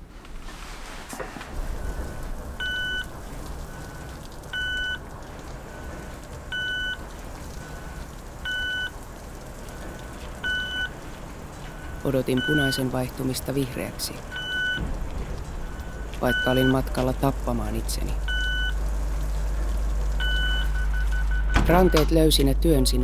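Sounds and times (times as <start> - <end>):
city traffic rumble: 0.0 - 23.0
crossing signal beeping: 1.7 - 9.0, 9.6 - 15.0, 15.6 - 18.9, 20.0 - 22.2
faint beeps: 11.7 - 12.9, 15.7 - 17.1.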